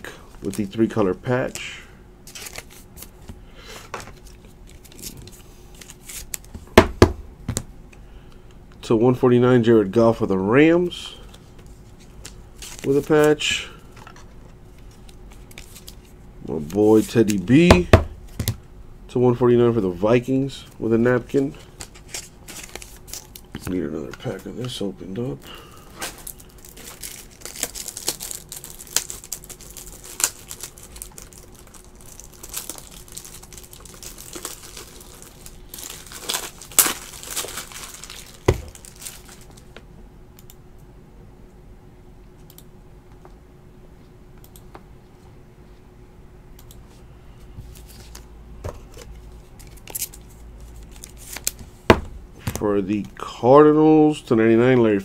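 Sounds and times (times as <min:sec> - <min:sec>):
wrapper tearing and crinkling: 0:02.3 - 0:03.1, 0:21.8 - 0:23.5, 0:26.0 - 0:39.7.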